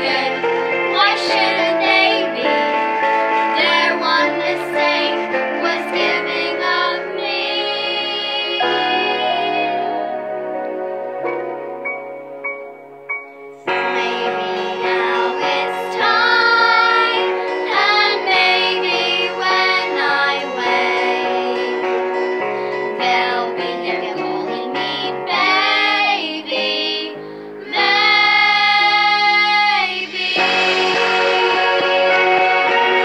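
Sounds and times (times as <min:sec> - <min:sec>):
girls singing together: 0:00.0 - 0:02.8, 0:03.4 - 0:10.0, 0:13.7 - 0:21.8, 0:23.0 - 0:33.0
instrumental accompaniment: 0:00.0 - 0:33.0.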